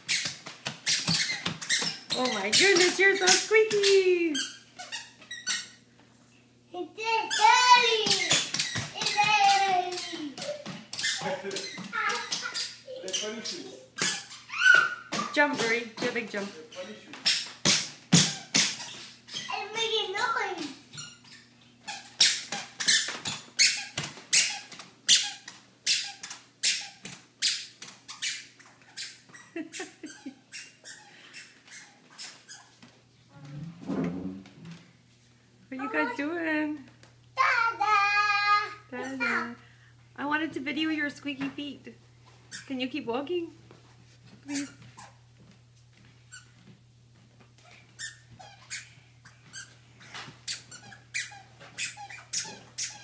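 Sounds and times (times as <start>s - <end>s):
squeaky shoes squeaking: 0.0s - 5.9s, 7.2s - 19.8s, 20.9s - 32.9s, 42.4s - 42.8s, 44.4s - 45.2s, 46.3s - 46.7s, 47.6s - 53.0s.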